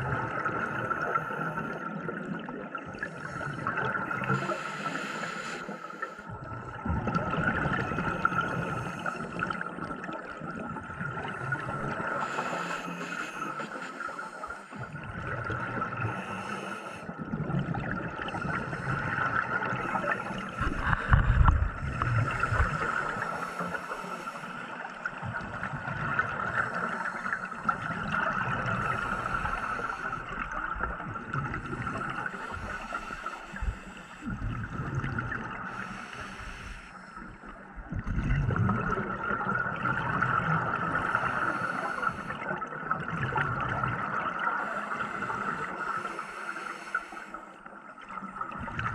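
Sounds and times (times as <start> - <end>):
bubbling exhaust underwater: 0.0 - 48.9
regulator inhale hiss: 3.1 - 6.3, 8.1 - 9.6, 11.5 - 15.0, 16.0 - 17.1, 18.4 - 25.1, 26.4 - 30.6, 31.7 - 34.5, 35.7 - 37.7, 40.8 - 42.5, 44.4 - 47.7.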